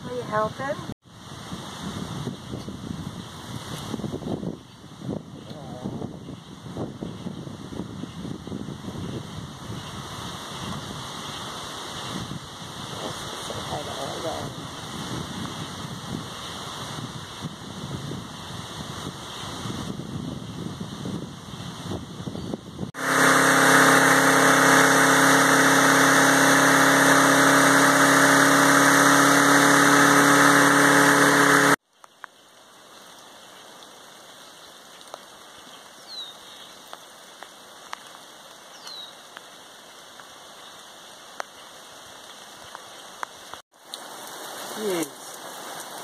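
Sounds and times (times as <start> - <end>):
wind in the trees: 0.0 - 31.8
lawn mower engine running: 23.0 - 31.8.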